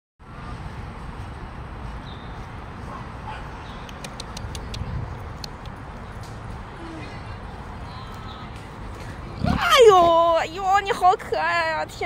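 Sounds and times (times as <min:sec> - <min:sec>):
sharp clicks: 0:03.8 - 0:06.4.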